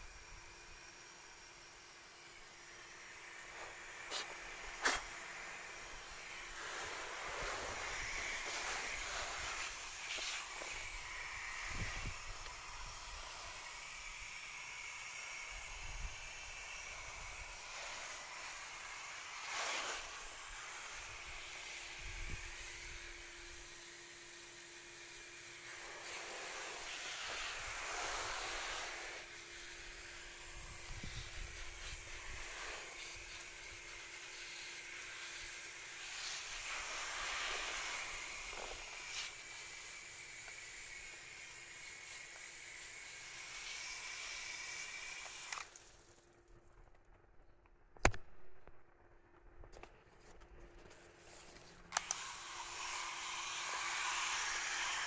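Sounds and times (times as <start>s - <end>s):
garden hose spraying shrubs: 0.0s - 46.6s, 50.7s - 55.0s
sharp click: 48.0s - 48.8s.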